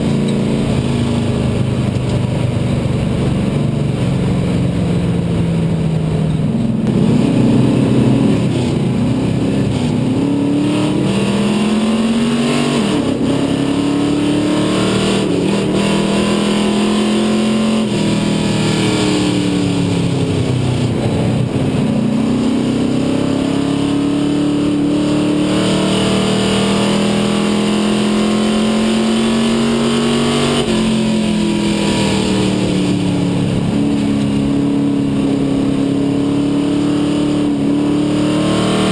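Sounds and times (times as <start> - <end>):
race car engine revving: 5.2 - 38.9.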